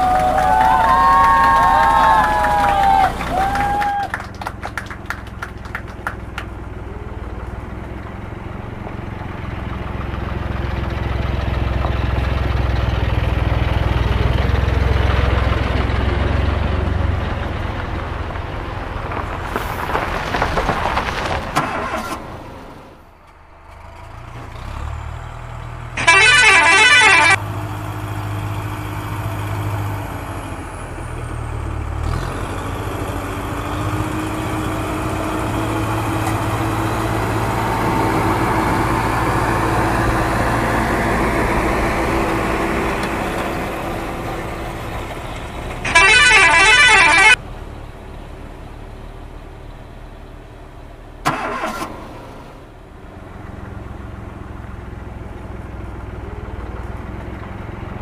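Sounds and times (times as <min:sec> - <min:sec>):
vehicle engine running: 0:00.0 - 0:58.0
loud horn honks: 0:26.0 - 0:27.4, 0:45.8 - 0:47.4.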